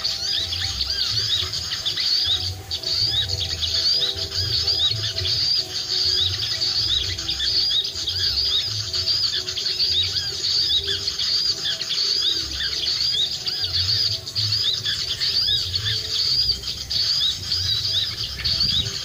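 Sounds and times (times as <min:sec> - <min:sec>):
high-pitched bird chirps: 0:00.0 - 0:19.0
wind on microphone: 0:16.6 - 0:19.0.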